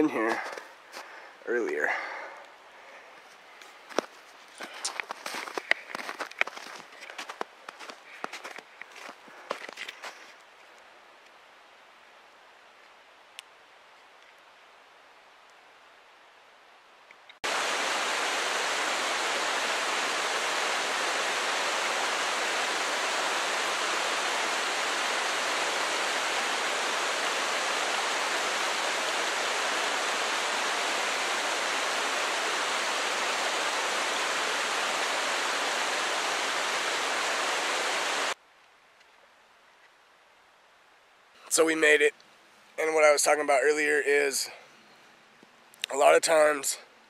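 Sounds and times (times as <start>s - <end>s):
creek cascading over boulders: 17.4s - 38.4s.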